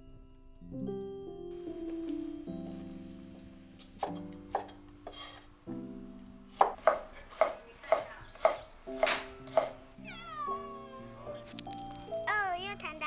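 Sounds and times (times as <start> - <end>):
cleaver chopping on wooden board: 4.0 - 5.4, 6.5 - 9.8.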